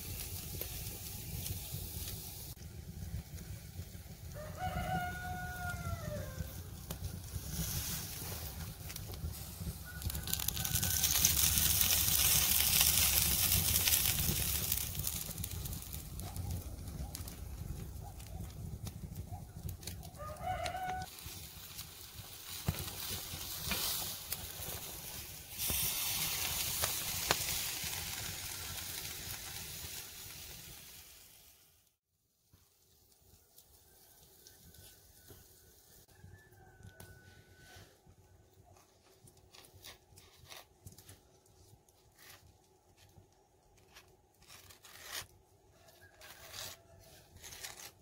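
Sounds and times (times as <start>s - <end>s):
chicken sizzling on grill: 0.0s - 38.0s, 38.8s - 48.0s
rooster crowing: 4.3s - 6.6s, 9.7s - 11.6s, 20.1s - 21.1s, 34.0s - 38.0s.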